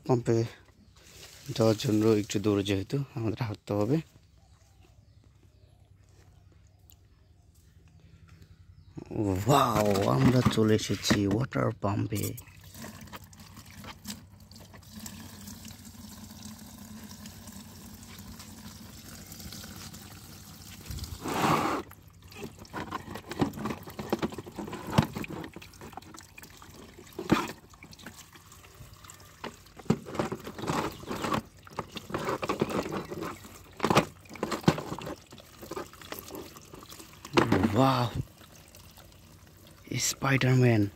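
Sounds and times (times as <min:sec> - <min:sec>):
water splashing and dripping: 0:21.9 - 0:40.1.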